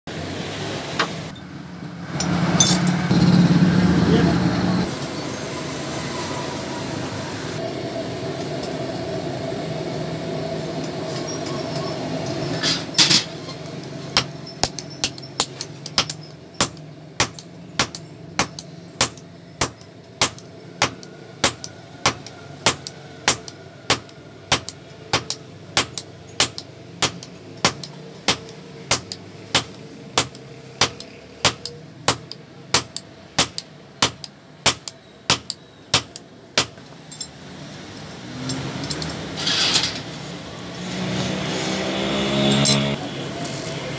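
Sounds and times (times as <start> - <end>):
mechanical hum: 0.1 - 43.9
hammer striking iron on anvil: 14.2 - 36.8.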